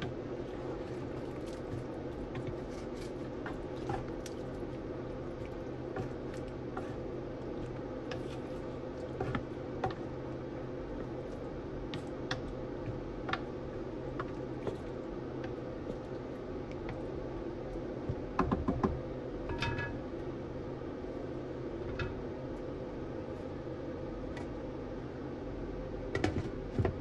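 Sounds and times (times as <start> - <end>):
low hum of pan cooking: 0.0 - 27.0
pops and crackles of cooking: 1.0 - 10.2.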